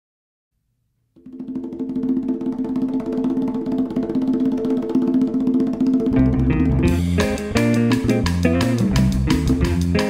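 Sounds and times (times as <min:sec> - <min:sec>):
fast percussion strokes: 0:01.2 - 0:10.0
bass line: 0:06.0 - 0:10.0.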